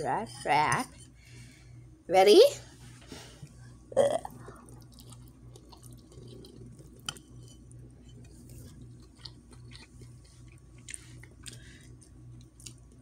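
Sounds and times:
fork scraping a bowl: 0:00.0 - 0:01.2, 0:06.1 - 0:09.9.

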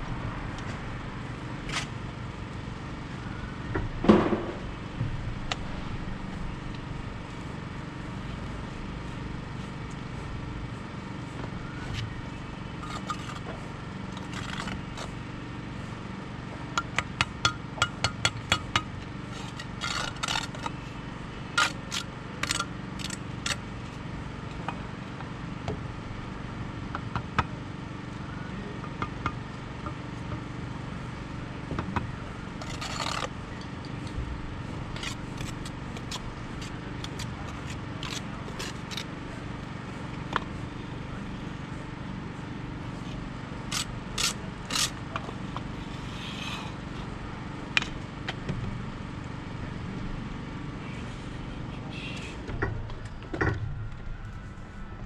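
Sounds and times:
low background rumble: 0:00.0 - 0:55.0
trowel scraping: 0:12.8 - 0:13.5, 0:14.1 - 0:15.2, 0:19.2 - 0:20.9, 0:32.6 - 0:33.4, 0:34.9 - 0:39.1, 0:43.0 - 0:45.0, 0:45.8 - 0:47.0.

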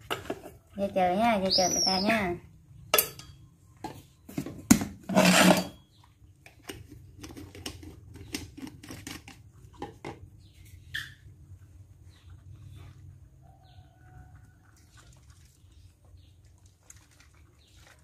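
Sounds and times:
metal spoon scraping a tin: 0:05.0 - 0:05.9.

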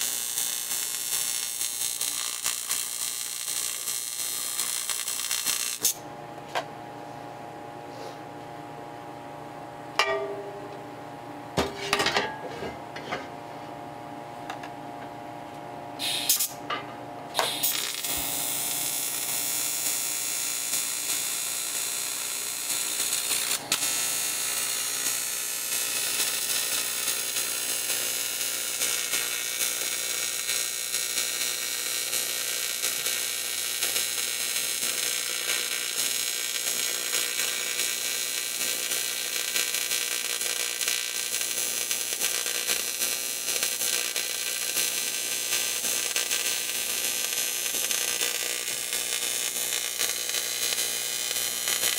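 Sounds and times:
welding arc hissing and buzzing: 0:00.0 - 0:06.0, 0:16.0 - 0:16.6, 0:17.3 - 0:51.9
steady hum: 0:00.0 - 0:19.7.

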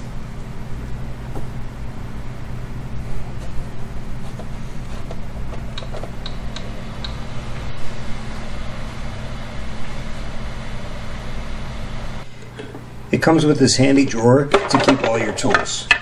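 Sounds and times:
printer fans humming: 0:00.0 - 0:16.0.

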